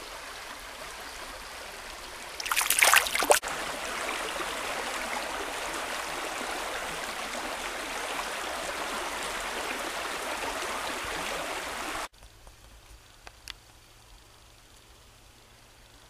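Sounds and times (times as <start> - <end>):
stream running over rocks: 0.0 - 12.2.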